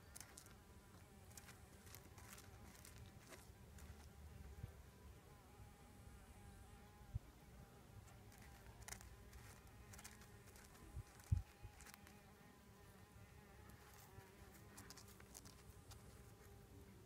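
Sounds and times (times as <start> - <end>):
light scratchy ticks: 0.0 - 4.2, 8.0 - 12.2, 13.6 - 16.5
flying insect buzzing: 0.0 - 17.0.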